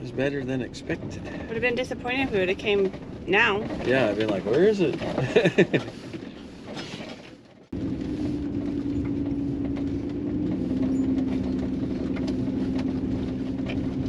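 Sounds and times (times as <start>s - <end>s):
engine and road noise: 0.0s - 14.0s.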